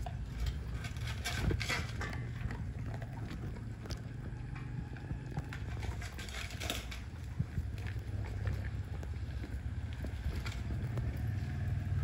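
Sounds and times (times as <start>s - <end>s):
dogs chewing meat and bone: 0.0s - 12.0s
low steady rumble: 0.0s - 12.0s.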